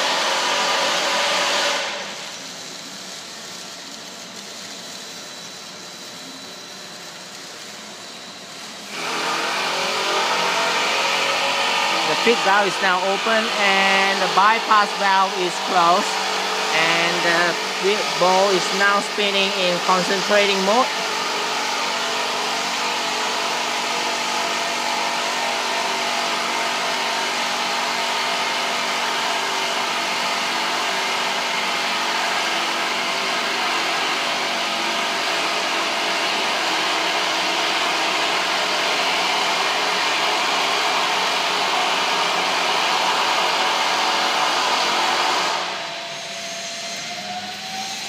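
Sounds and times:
machine whirring rush: 5.2s - 27.9s, 40.9s - 48.0s
rising machine whine: 45.5s - 48.0s.

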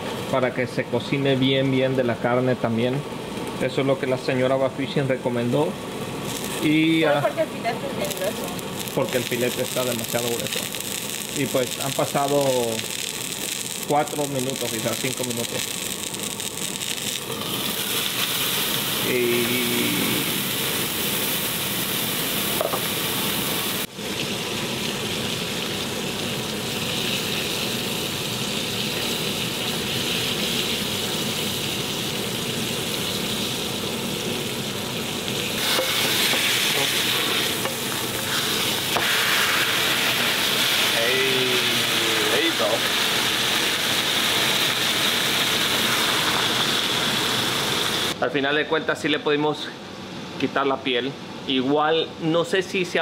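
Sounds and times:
fish sizzling in a frying pan: 5.9s - 48.2s.

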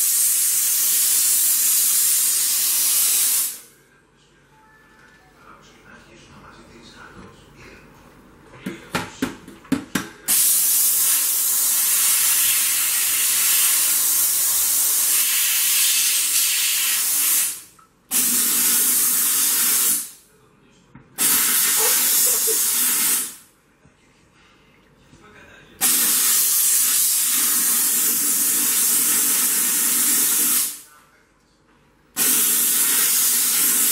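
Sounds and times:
steam jetting with a hiss: 0.0s - 3.7s, 10.3s - 20.2s, 21.2s - 23.4s, 25.8s - 30.8s, 32.2s - 33.9s.

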